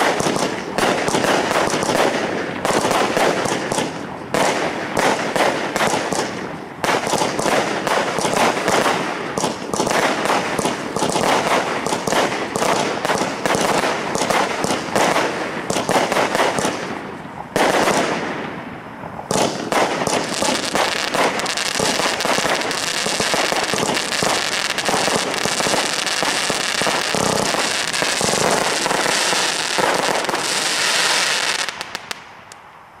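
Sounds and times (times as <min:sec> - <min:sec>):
firework crackling: 0:00.0 - 0:32.6
firework shells bursting: 0:19.3 - 0:32.6.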